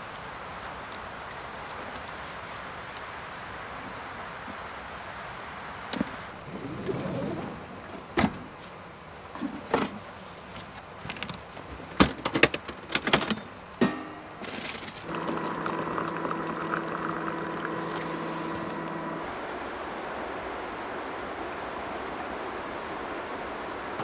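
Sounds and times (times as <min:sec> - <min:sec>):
clicks and knocks of gear: 0:10.6 - 0:13.6
background hiss: 0:13.6 - 0:23.9
hot drink pouring into cup: 0:15.0 - 0:19.3.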